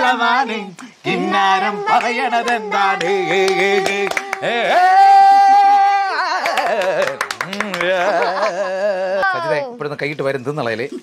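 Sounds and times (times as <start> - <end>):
man singing unaccompanied: 0.0 - 7.2
people clapping along: 0.5 - 8.6.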